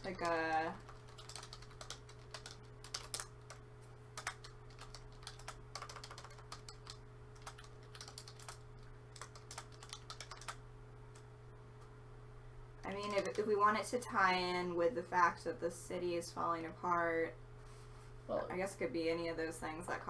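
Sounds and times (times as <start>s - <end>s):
keyboard typing: 0.0s - 3.6s, 4.2s - 11.2s, 12.8s - 13.5s
low steady hum: 0.0s - 20.0s.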